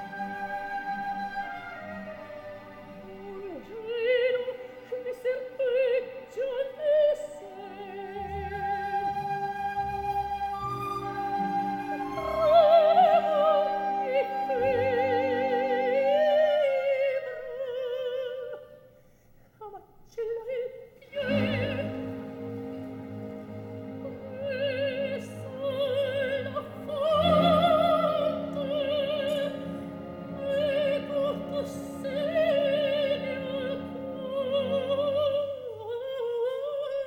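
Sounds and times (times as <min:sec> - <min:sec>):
operatic soprano singing: 0:00.0 - 0:18.9, 0:19.6 - 0:37.0
low orchestral chords: 0:21.2 - 0:35.7.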